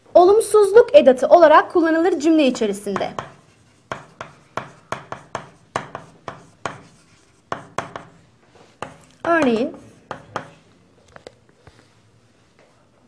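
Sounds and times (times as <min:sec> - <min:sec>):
chalk tapping and scraping on chalkboard: 0:02.5 - 0:10.7.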